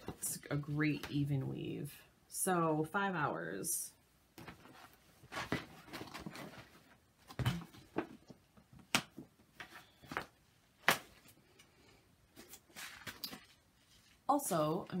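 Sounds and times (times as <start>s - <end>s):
materials rustling: 4.4s - 15.0s.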